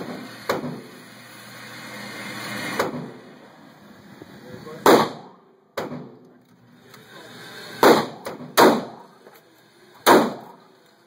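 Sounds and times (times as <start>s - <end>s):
pistol shots indoors: 7.8s - 9.0s, 10.1s - 10.5s.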